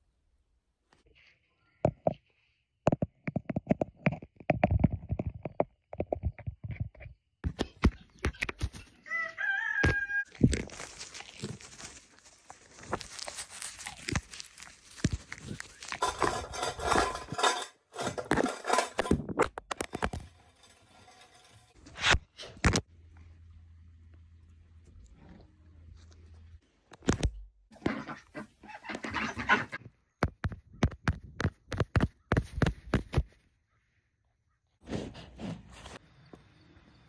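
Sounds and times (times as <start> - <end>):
rustling and scuffling: 6.2 - 19.1.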